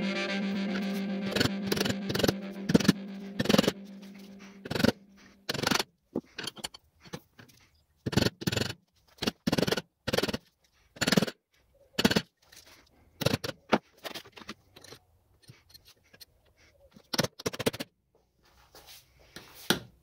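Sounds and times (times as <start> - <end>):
metal tool scraping metal: 1.7 - 7.2.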